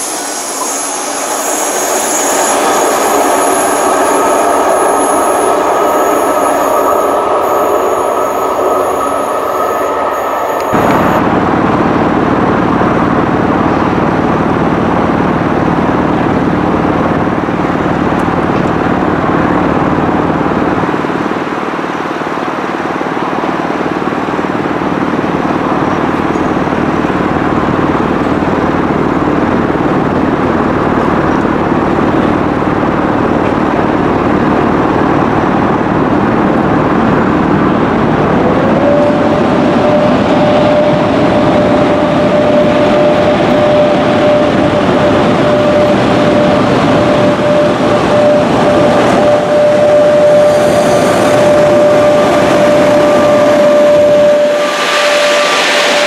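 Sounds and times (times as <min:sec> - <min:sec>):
high tone: 0:00.0 - 0:12.8, 0:37.2 - 0:56.0
electric locomotive rumbling: 0:00.0 - 0:56.0.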